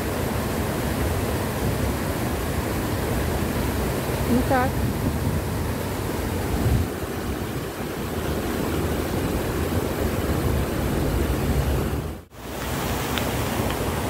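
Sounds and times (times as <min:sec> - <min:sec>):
wind buffeting microphone: 0:03.6 - 0:12.2.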